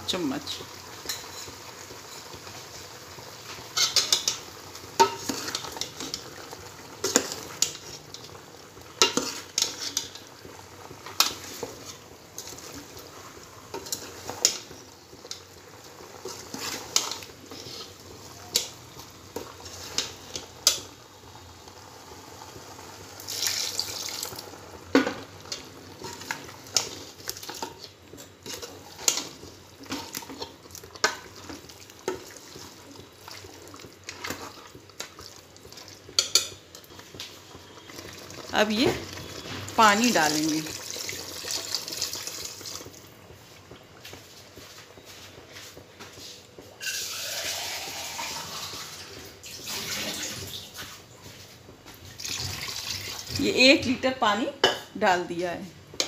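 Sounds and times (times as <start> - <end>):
faint sizzle of frying: 0.0 - 56.0
ladle scraping a steel pot: 46.8 - 48.4.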